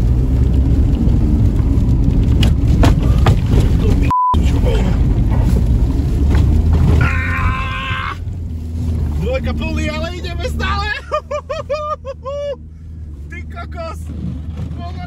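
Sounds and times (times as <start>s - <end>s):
car engine droning: 0.0s - 15.0s
tyres rumbling in snow: 0.0s - 15.0s
short beep: 4.1s - 4.4s.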